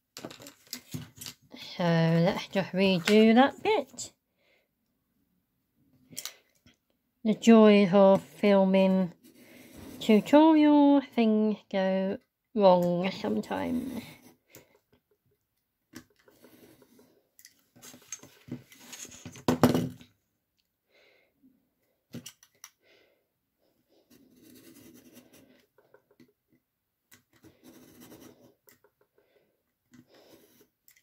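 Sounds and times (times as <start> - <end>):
craft knife scraping through card: 24.1 - 25.5.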